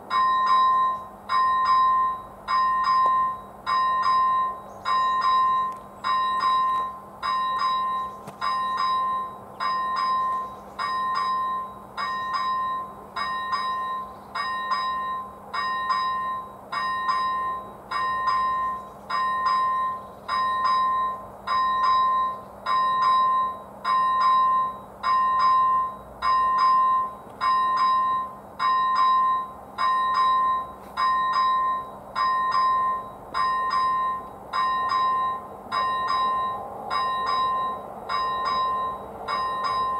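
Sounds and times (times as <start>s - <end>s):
level crossing bell chiming: 0.1s - 39.9s.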